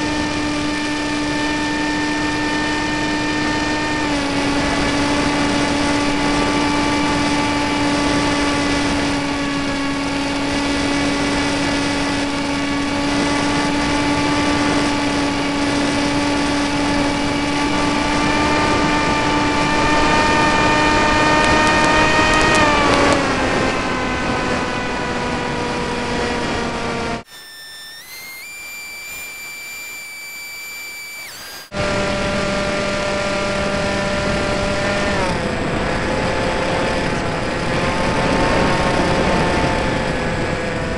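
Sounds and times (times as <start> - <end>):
model airplane motor and propeller: 0.0 - 40.9
stepped whistling tones: 27.3 - 31.7.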